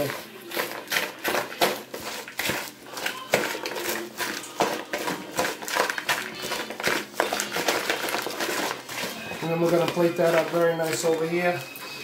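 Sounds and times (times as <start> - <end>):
lettuce and croutons rustling: 0.0 - 12.0
salad servers scraping a bowl: 0.0 - 12.0.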